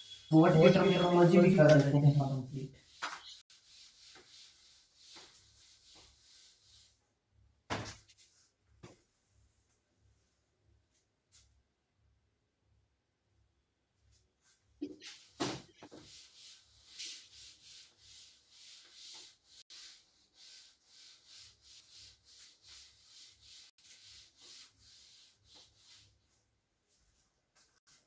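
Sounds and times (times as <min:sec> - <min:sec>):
cloth wiping chalkboard: 0:00.0 - 0:07.1, 0:14.1 - 0:28.0.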